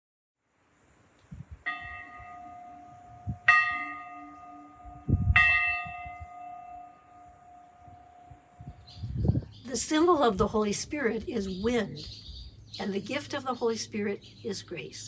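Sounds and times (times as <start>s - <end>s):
church bells ringing: 1.7s - 9.0s.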